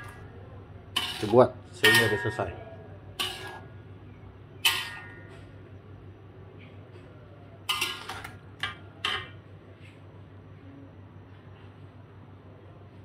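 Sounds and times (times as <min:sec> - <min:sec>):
metal spatula clinking on wok: 0:01.0 - 0:02.6, 0:03.2 - 0:03.7, 0:04.6 - 0:05.6, 0:07.7 - 0:09.4.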